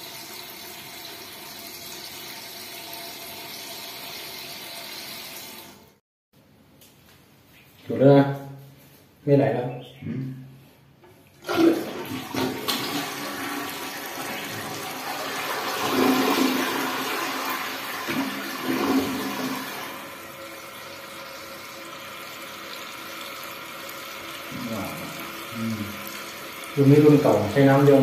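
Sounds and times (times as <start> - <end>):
toilet flushing water rush: 11.4 - 28.0.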